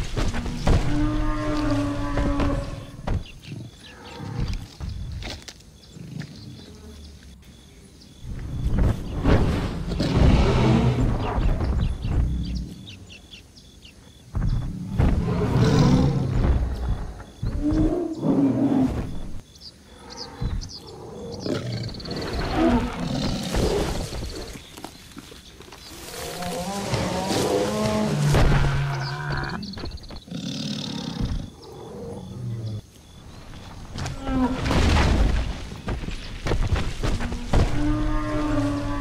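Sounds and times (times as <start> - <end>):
big cat roars and growls: 9.0 - 12.8, 14.4 - 19.4, 20.0 - 24.6, 26.0 - 32.8, 37.2 - 39.0.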